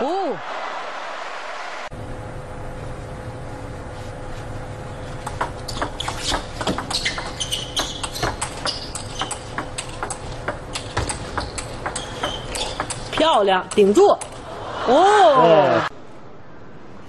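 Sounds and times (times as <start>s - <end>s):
low arena hum: 0.0s - 17.0s
shoe squeaks: 5.3s - 13.3s
table tennis ball clicking: 5.3s - 14.4s.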